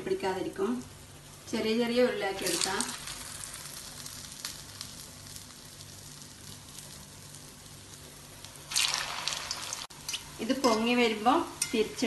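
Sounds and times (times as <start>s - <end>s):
batter frying in hot oil: 0.0s - 12.0s
small crackles: 2.4s - 10.4s.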